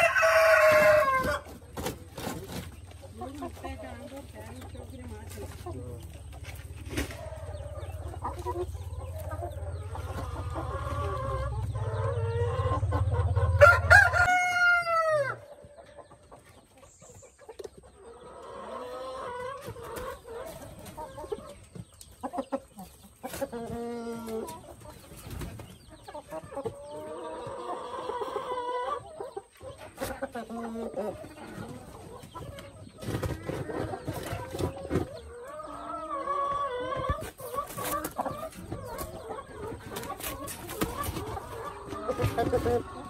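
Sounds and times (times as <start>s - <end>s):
rooster crowing: 0.0s - 1.4s, 13.5s - 15.4s
hens clucking: 0.0s - 43.0s.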